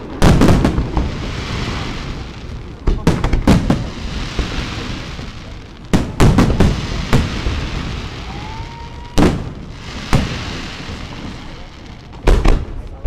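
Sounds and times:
firework shells bursting: 0.0 - 12.9
rising firework whistle: 6.7 - 11.7.

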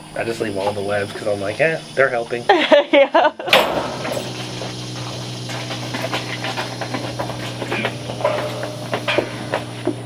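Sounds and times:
vacuum pump hum and hiss: 0.0 - 10.0
cow hooves knocking on concrete: 3.6 - 10.0.

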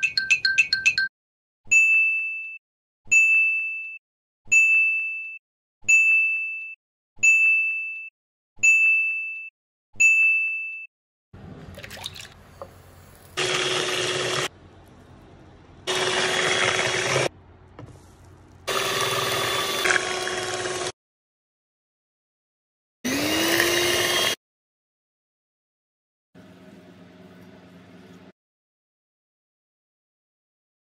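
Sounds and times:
electric hand mixer whirring: 13.4 - 14.5, 15.9 - 17.3, 18.7 - 20.9, 23.1 - 24.4.

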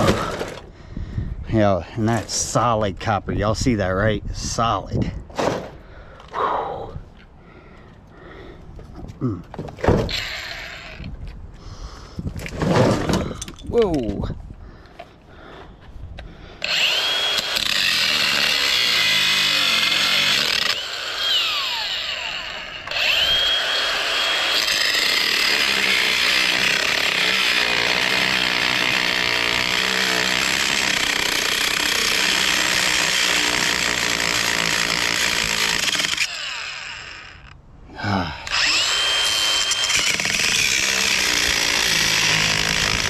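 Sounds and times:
angle grinder cutting steel: 10.1 - 11.1, 16.6 - 37.5, 38.4 - 43.0.

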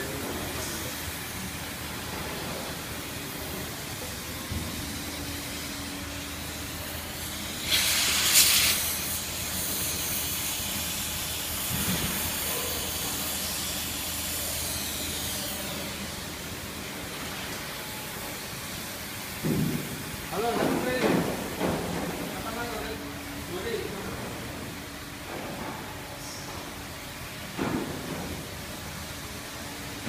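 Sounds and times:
gas torch flame hissing: 5.6 - 15.5.

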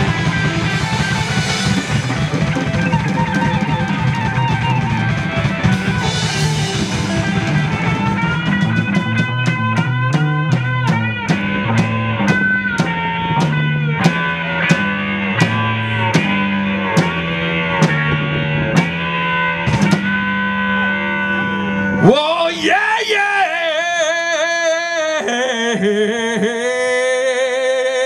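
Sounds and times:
drum kit beat: 0.0 - 20.4
bass guitar line: 0.0 - 27.6
electric guitars: 0.0 - 28.0.

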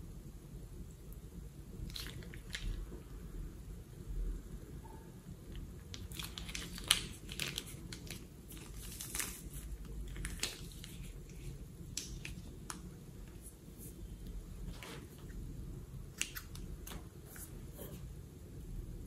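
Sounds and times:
plastic bag crinkling: 1.9 - 2.8, 5.9 - 12.8.

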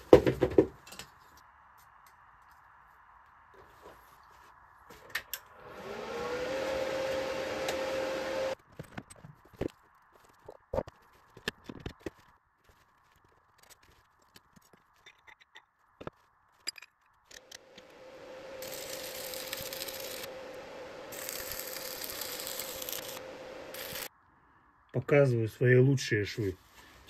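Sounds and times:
arc welding crackling hiss: 17.7 - 24.1.

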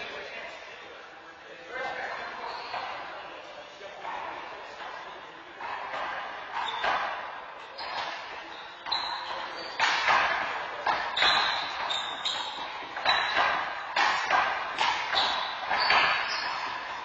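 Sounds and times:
ball striking wall and floor: 3.9 - 17.0.

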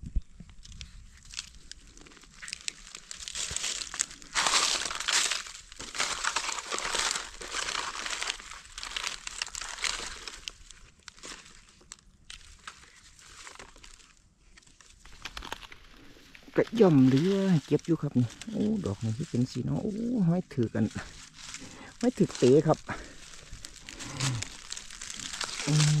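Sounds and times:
dry leaves rustling and crackling: 0.6 - 26.0.

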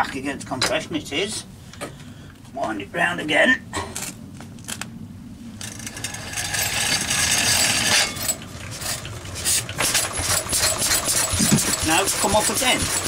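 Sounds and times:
mechanical clatter: 5.6 - 13.0
small petrol engine running: 5.6 - 13.0.

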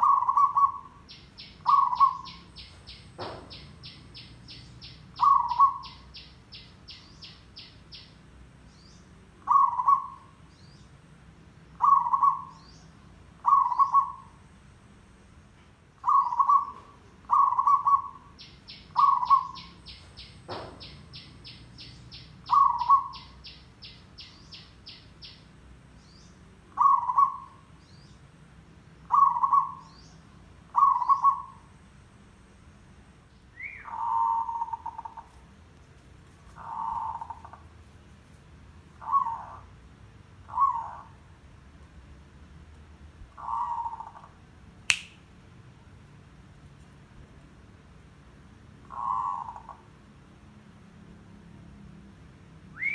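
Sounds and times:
dove cooing: 0.0 - 6.6, 9.4 - 10.4, 11.8 - 12.6, 13.4 - 14.4, 16.0 - 21.6, 22.5 - 23.4, 26.7 - 27.7, 29.1 - 29.9, 30.7 - 31.7, 33.6 - 35.3, 36.5 - 37.7, 39.0 - 39.7, 40.5 - 41.2, 43.4 - 44.4, 48.8 - 49.9
single thump: 3.2 - 3.6, 20.5 - 20.8.

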